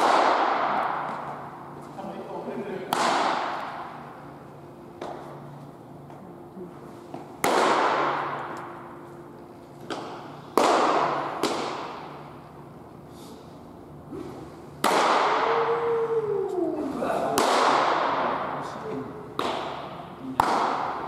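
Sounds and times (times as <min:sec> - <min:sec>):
baseballs popping into mitt: 0:09.8 - 0:12.1, 0:19.4 - 0:21.0
person calling out: 0:15.4 - 0:17.3.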